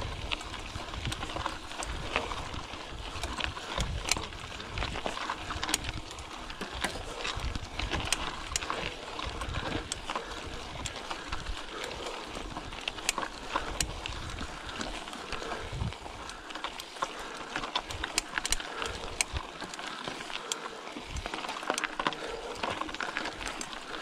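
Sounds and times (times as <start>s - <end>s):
bicycle clicks and rattles: 0.0s - 24.0s
wind on microphone: 15.5s - 16.3s.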